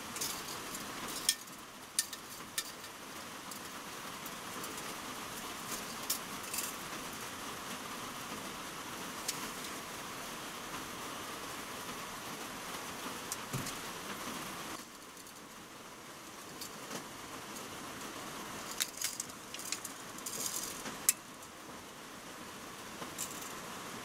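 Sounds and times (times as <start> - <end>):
steady hiss: 0.0 - 24.0
tape measure clicking and rattling: 18.7 - 21.2.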